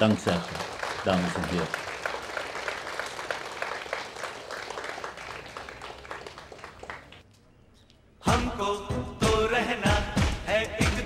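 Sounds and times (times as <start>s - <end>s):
audience applauding: 0.0s - 7.2s
loud music: 8.3s - 11.0s.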